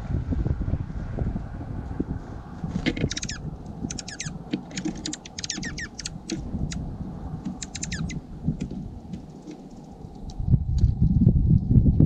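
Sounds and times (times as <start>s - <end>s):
wind rumble on microphone: 0.0s - 12.0s
songbirds chirping: 2.4s - 10.4s.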